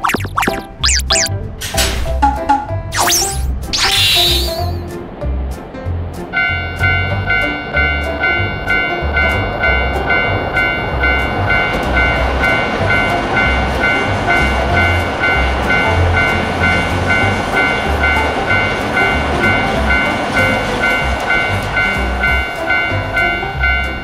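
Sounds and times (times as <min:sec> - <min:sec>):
electric train passing: 0:06.2 - 0:24.0
railroad crossing bell ringing: 0:06.4 - 0:24.0.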